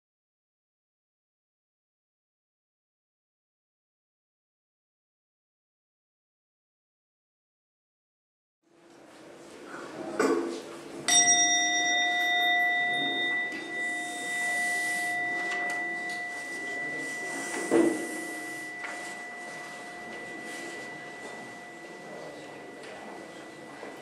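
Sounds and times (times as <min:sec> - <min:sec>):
metal bell ringing: 0:11.1 - 0:24.0.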